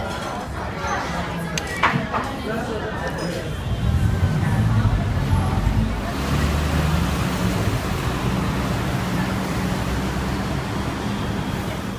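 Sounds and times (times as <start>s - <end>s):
vehicle engine rumble: 3.6s - 11.9s
road noise hiss: 4.3s - 11.9s.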